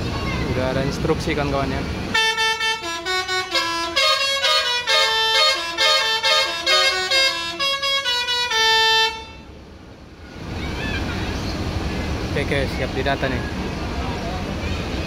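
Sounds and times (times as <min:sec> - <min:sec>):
musical bus air horn tune: 0:02.1 - 0:09.6.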